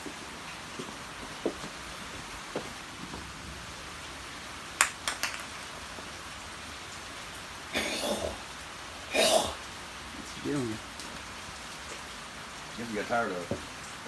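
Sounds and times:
steady rain-like hiss: 0.0s - 14.0s
chew toy knocking on concrete: 4.8s - 5.5s.

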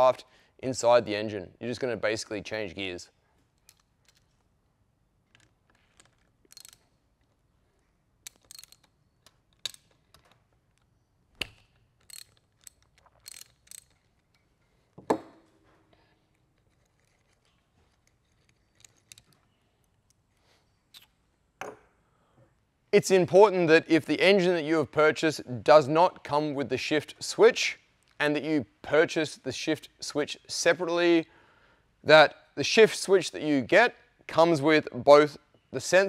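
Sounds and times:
socket ratchet clicking: 3.6s - 4.4s, 5.3s - 7.4s, 8.2s - 14.5s.

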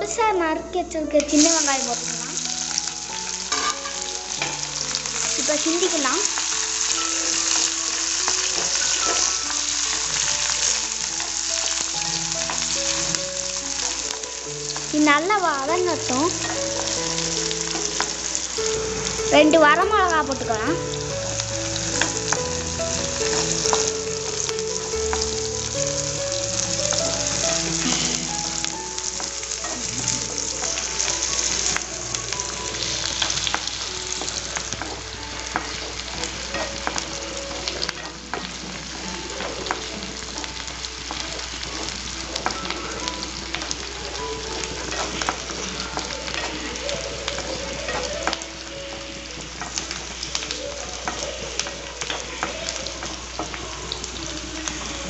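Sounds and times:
onions sizzling in hot oil: 0.0s - 55.0s.

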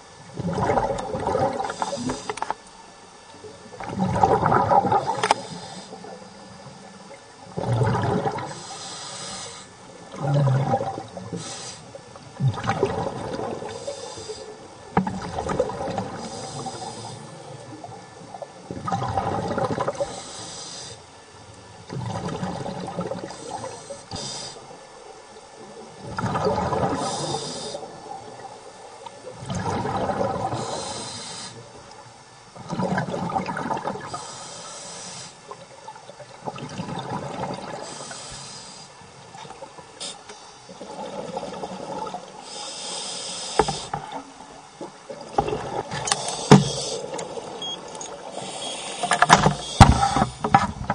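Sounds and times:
bubbling exhaust underwater: 0.0s - 21.0s, 21.6s - 50.9s
regulator inhale hiss: 1.6s - 2.6s, 4.9s - 6.3s, 8.5s - 10.0s, 11.3s - 12.0s, 13.6s - 14.7s, 16.1s - 17.7s, 20.0s - 21.2s, 23.3s - 24.8s, 26.9s - 28.0s, 30.5s - 31.8s, 34.0s - 35.6s, 37.8s - 39.1s, 40.0s - 40.8s, 41.5s - 44.2s, 46.0s - 47.6s, 48.3s - 50.6s.

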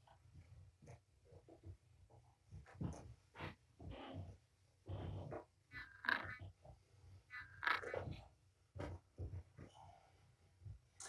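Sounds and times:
soft thumps and knocks: 0.8s - 5.6s, 8.0s - 9.8s.

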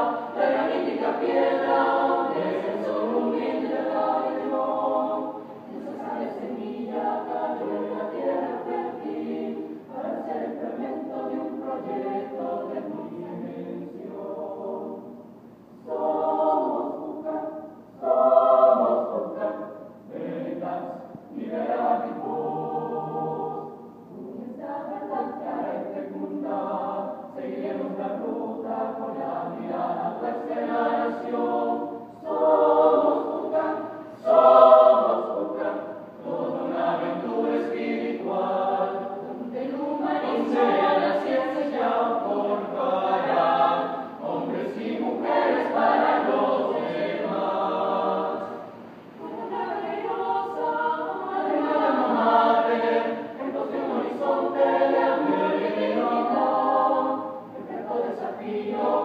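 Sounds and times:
choir singing a hymn: 0.0s - 59.0s.

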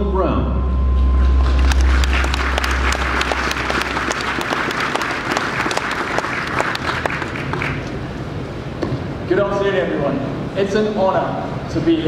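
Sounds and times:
sound system hum: 0.0s - 10.6s
audience applauding: 1.2s - 8.1s.

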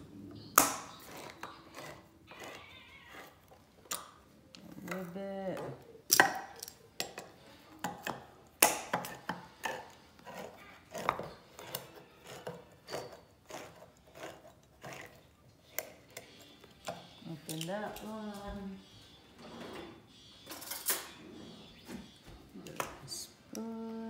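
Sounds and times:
can opener clicking and grinding: 9.6s - 16.2s.

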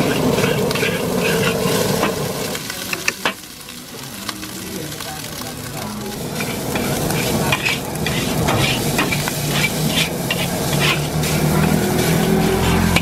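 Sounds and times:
metal spatula scraping a wok: 0.0s - 2.3s, 6.2s - 13.0s
food sizzling: 0.0s - 13.0s.

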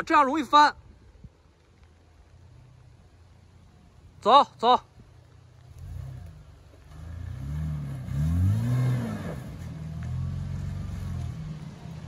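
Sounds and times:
off-road vehicle engine revving: 5.5s - 12.0s.

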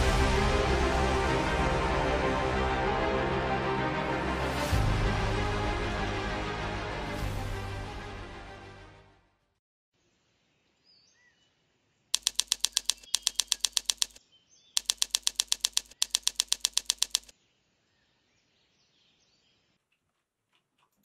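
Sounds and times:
typewriter key clacks: 12.2s - 14.2s, 14.8s - 17.3s.

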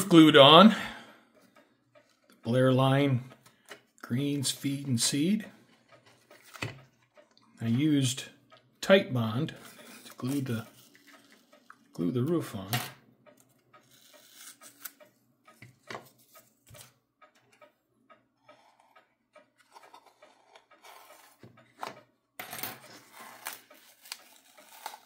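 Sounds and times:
masking tape being peeled: 23.2s - 25.0s.

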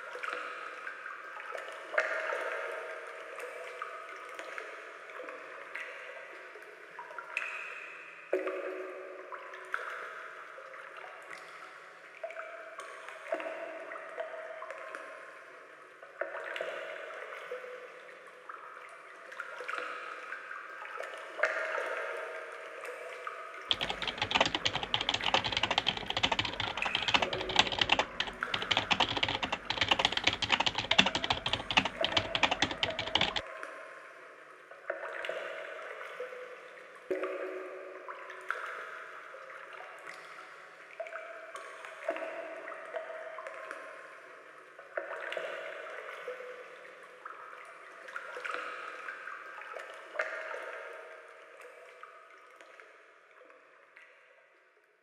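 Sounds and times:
computer keyboard typing: 23.7s - 33.4s
trickling dripping water: 23.7s - 33.4s.

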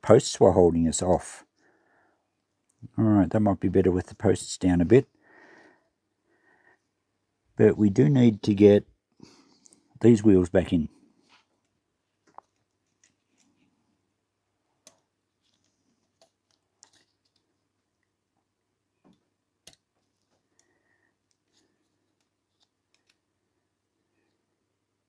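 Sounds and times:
faint clicks and taps: 11.2s - 13.8s, 14.8s - 23.3s.

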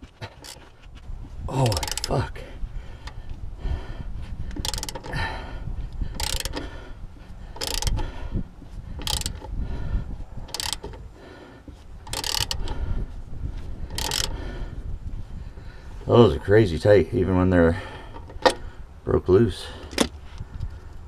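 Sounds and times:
ratchet pawl clicking: 0.4s - 0.6s, 1.6s - 2.2s, 4.5s - 5.2s, 5.9s - 6.7s, 7.5s - 8.1s, 9.0s - 9.5s, 10.4s - 11.0s, 12.0s - 12.8s, 13.9s - 14.4s.

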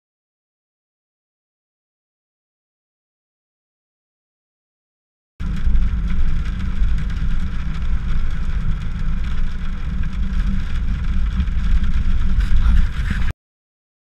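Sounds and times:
car driving on wet road: 5.4s - 13.3s
hiss of rain and spray: 5.4s - 13.3s.

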